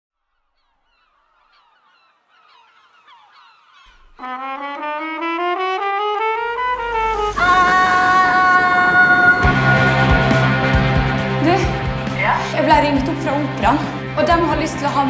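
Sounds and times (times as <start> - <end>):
faint bird calls: 0.3 - 4.4
trumpet playing slow phrase: 4.1 - 12.2.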